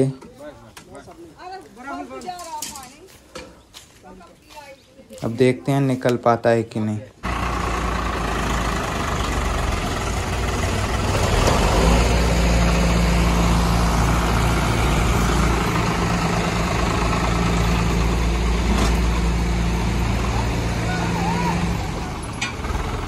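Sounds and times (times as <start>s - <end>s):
diesel tractor engines under load: 5.2s - 23.0s.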